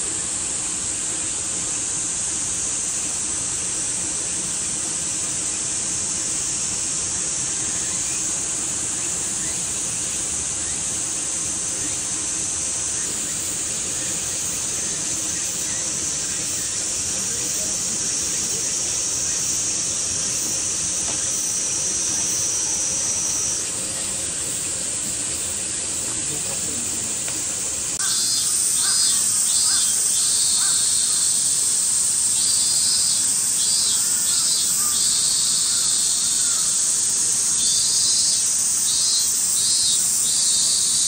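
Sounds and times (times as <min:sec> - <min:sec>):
cicada chorus: 0:00.0 - 0:41.0
single loud cicada: 0:00.0 - 0:41.0.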